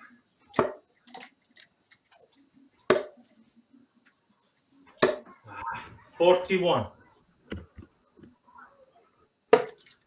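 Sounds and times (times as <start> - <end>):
darts clicking and scraping: 0.4 - 5.4.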